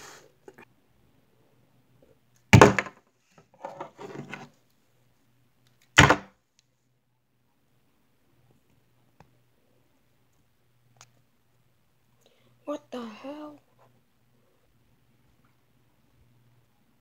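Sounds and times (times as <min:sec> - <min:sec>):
plastic figures knocking on cardboard: 0:02.5 - 0:03.0, 0:06.0 - 0:06.3.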